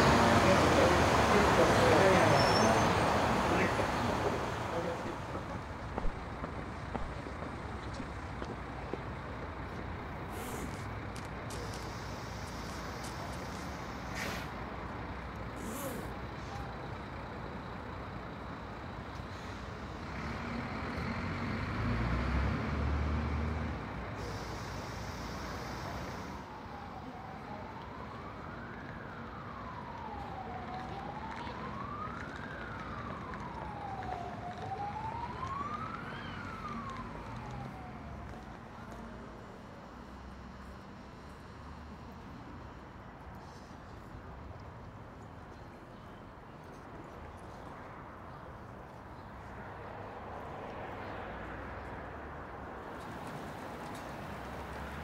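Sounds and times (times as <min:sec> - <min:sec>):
emergency siren wailing: 0:00.0 - 0:08.6, 0:10.3 - 0:14.2, 0:16.3 - 0:44.0
heavy vehicle rumbling past: 0:00.0 - 0:26.8
city street traffic: 0:00.0 - 0:55.0.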